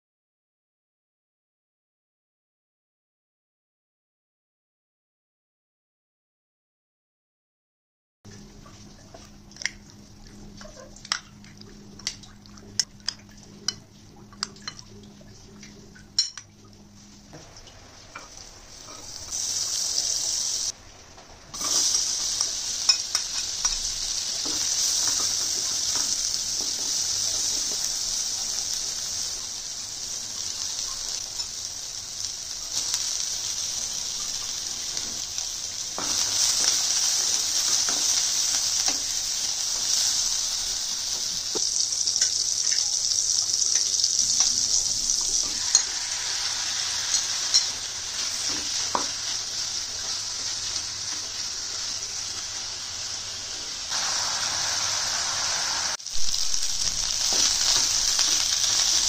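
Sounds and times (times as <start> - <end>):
onions sizzling in hot oil: 17.3 - 20.8, 21.5 - 59.0.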